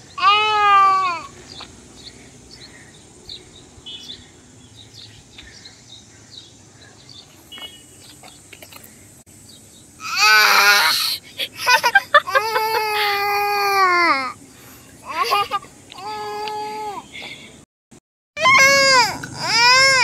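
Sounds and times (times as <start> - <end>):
young child wailing: 0.2 - 1.3, 10.0 - 11.1, 18.4 - 20.0
faint bird chirps: 1.3 - 9.6.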